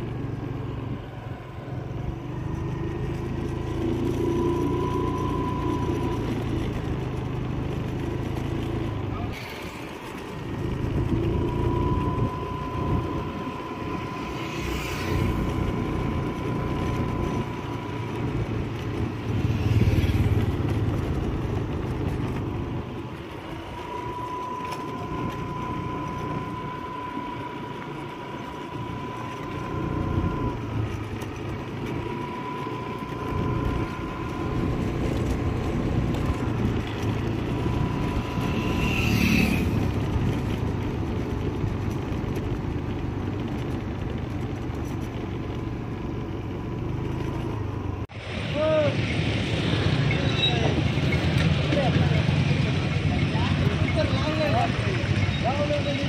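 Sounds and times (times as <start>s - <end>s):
vehicle engine and road noise: 0.0s - 56.0s
thin high tone: 23.1s - 31.0s.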